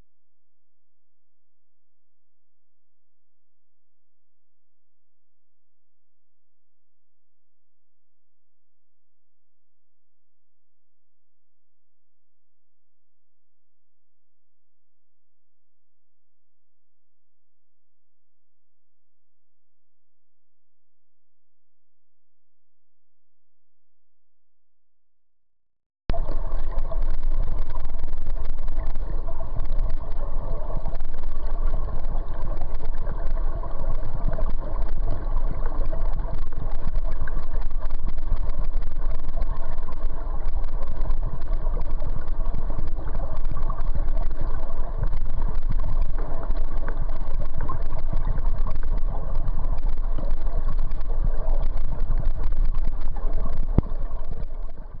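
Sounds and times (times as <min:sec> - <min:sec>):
river current heard underwater: 0:26.1 - 0:55.0.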